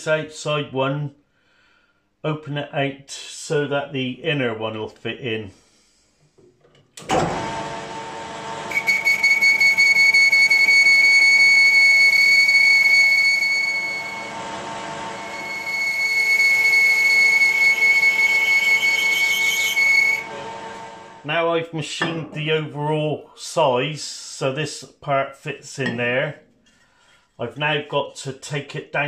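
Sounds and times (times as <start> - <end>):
metal lathe spinning: 7.1 - 21.3
boring bar cutting with squeal: 8.6 - 21.2.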